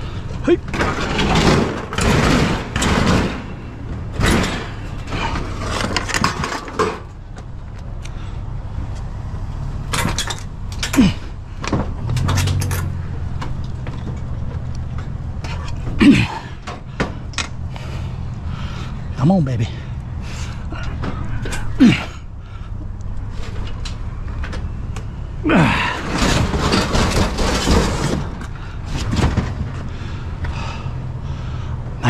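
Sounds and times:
metal appliance clunking and scraping: 0:00.0 - 0:07.4, 0:09.8 - 0:17.9, 0:23.2 - 0:29.9
man grunting: 0:16.0 - 0:16.6, 0:20.7 - 0:22.3, 0:25.4 - 0:26.0.

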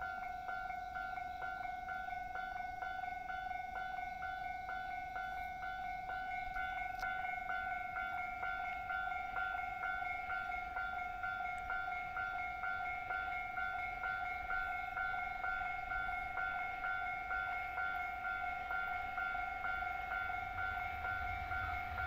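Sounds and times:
level-crossing warning bell: 0:00.0 - 0:22.0.

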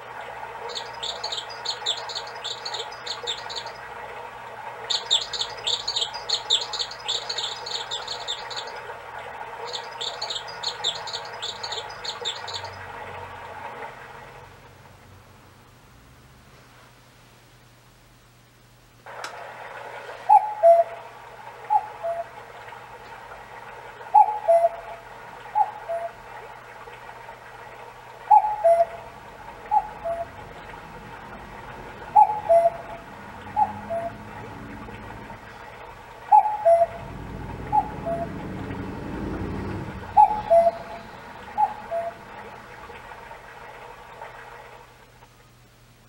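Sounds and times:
recorded babbling stream: 0:00.0 - 0:16.5, 0:19.0 - 0:46.0
recorded cuckoo calling: 0:00.6 - 0:03.8, 0:04.9 - 0:08.9, 0:09.6 - 0:12.8, 0:20.2 - 0:22.4, 0:24.1 - 0:26.3, 0:28.2 - 0:30.8, 0:31.9 - 0:35.1, 0:36.2 - 0:43.4
low rumble: 0:36.6 - 0:44.2.

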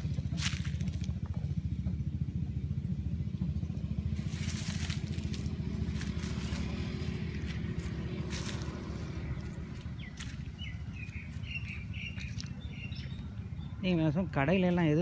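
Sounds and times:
leaves crunching underfoot: 0:00.0 - 0:01.1, 0:04.2 - 0:12.6.

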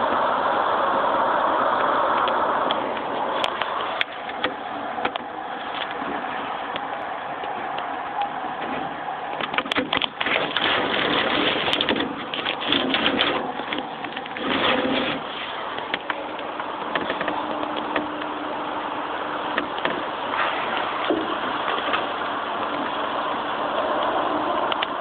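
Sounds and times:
steady hiss: 0:00.0 - 0:25.0.

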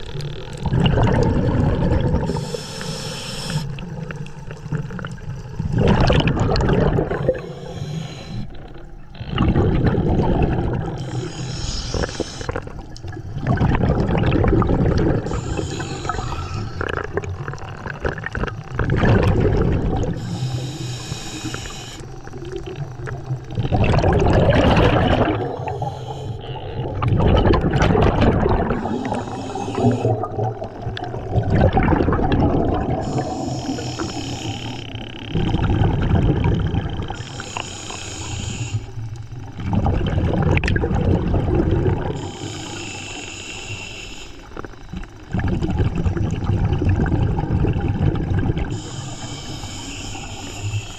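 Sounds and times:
bubbling exhalations: 0:00.6 - 0:02.7, 0:03.4 - 0:20.4, 0:22.4 - 0:34.7, 0:35.3 - 0:37.6, 0:39.5 - 0:42.6, 0:45.0 - 0:49.0
diver breathing through regulator: 0:02.2 - 0:03.9, 0:07.0 - 0:12.8, 0:15.1 - 0:17.3, 0:20.0 - 0:22.3, 0:24.6 - 0:27.0, 0:28.4 - 0:31.4, 0:32.6 - 0:39.2, 0:42.0 - 0:45.0, 0:48.6 - 0:50.9.

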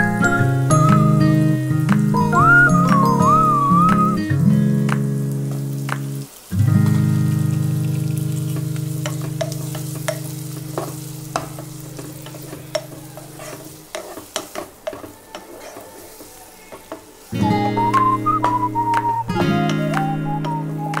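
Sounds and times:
chicken sizzling in a pan: 0:00.0 - 0:21.0
spatula scraping and tapping pan: 0:07.8 - 0:17.1.

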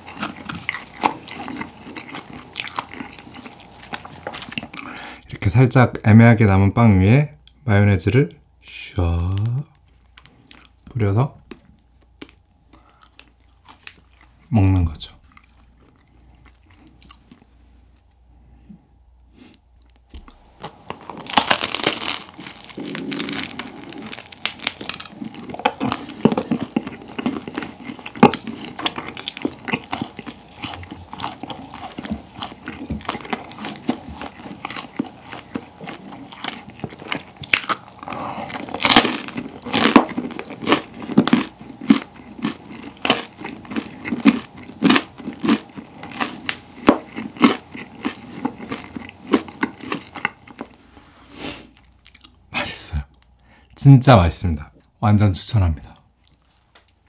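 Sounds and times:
crunchy bread chewing: 0:00.0 - 0:05.1, 0:09.9 - 0:10.9, 0:11.6 - 0:14.5, 0:15.2 - 0:18.2, 0:19.8 - 0:51.0, 0:51.6 - 0:52.4.

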